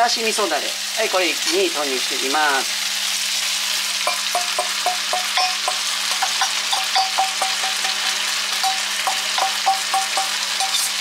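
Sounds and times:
sauce sizzling in a frying pan: 0:00.0 - 0:11.0
utensil ticking against pan: 0:04.0 - 0:11.0.

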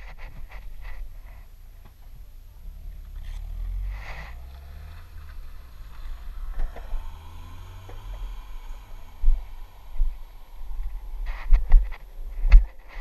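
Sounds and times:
skateboard wheels rolling on asphalt: 0:02.7 - 0:13.0
wind buffeting camera: 0:05.3 - 0:13.0.

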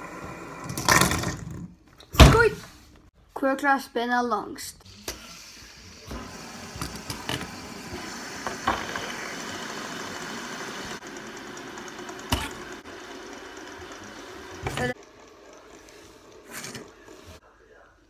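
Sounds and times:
fidget spinners whirring: 0:04.8 - 0:17.4.

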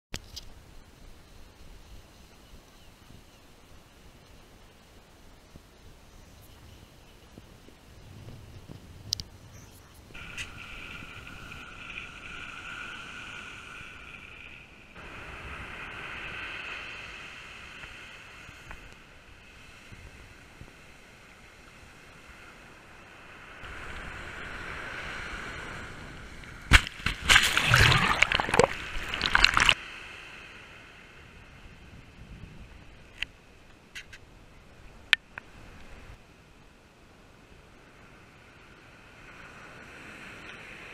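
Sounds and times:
waves washing up sand: 0:10.2 - 0:31.3
choppy splashing: 0:26.7 - 0:29.8.

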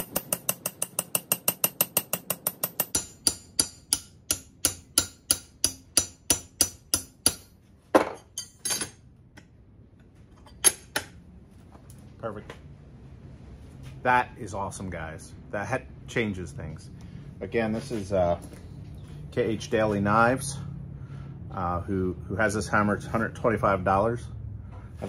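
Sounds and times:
hammer tapping steel blade: 0:00.0 - 0:07.5.

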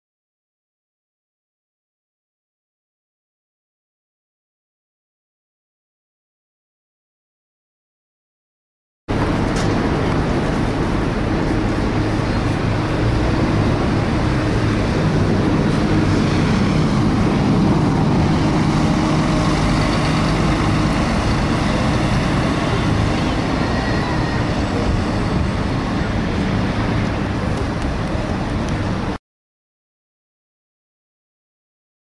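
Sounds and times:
bus diesel engine: 0:09.1 - 0:29.2
engine cooling fan whirr: 0:09.1 - 0:29.2.

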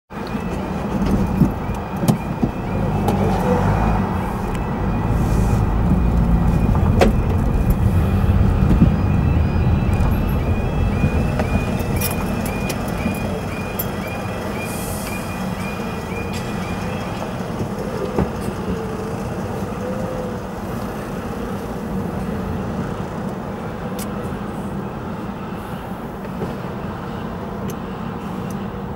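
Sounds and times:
level crossing alarm tone: 0:00.2 - 0:20.4
lorry engine idling: 0:00.2 - 0:23.7.

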